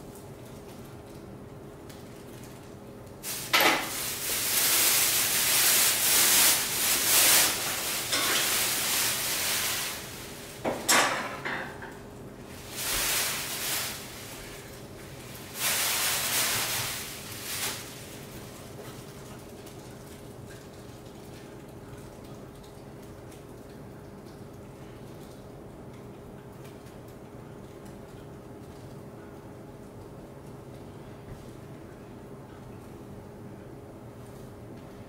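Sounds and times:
plastic packaging crinkling: 2.0 - 10.6, 12.6 - 20.0.

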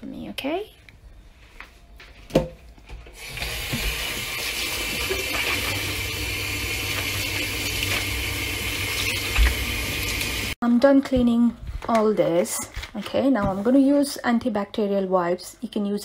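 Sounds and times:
sponge rinsed under water: 3.2 - 10.6
water running into steel sink: 3.2 - 10.6.

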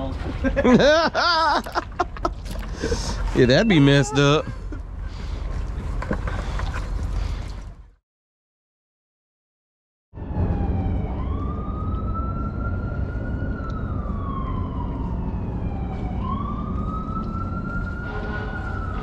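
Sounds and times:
emergency siren wailing: 10.2 - 19.0.

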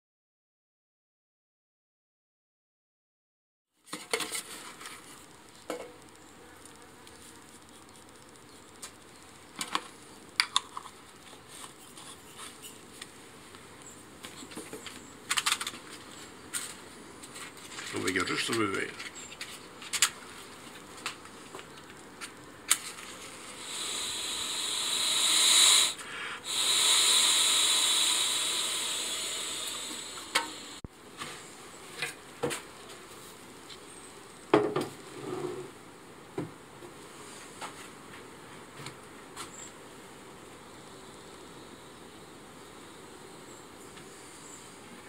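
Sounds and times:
smoker hissing from blowing: 23.1 - 30.8.

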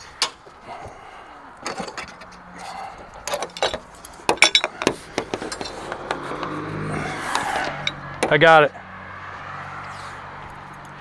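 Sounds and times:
metallic clinks and rattles: 1.6 - 5.8.

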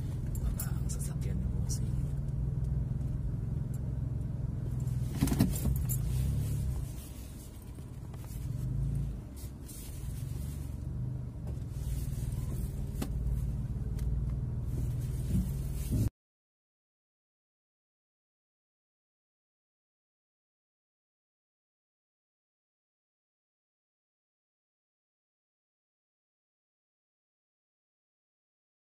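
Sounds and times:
motor vehicle rumble: 0.0 - 16.1.

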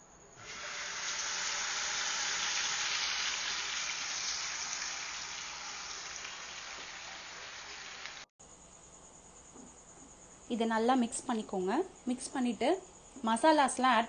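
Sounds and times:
paste sizzling in hot oil: 0.4 - 8.3.

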